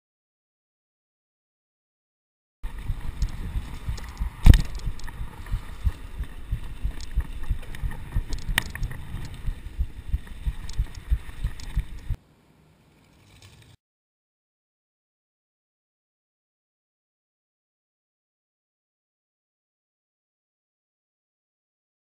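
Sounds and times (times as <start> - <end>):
bike rattling over dirt trail: 2.6 - 12.2.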